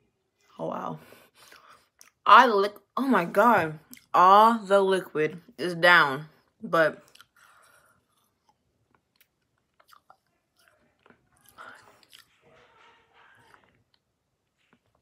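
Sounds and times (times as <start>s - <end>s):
chewing candy: 7.0s - 12.4s.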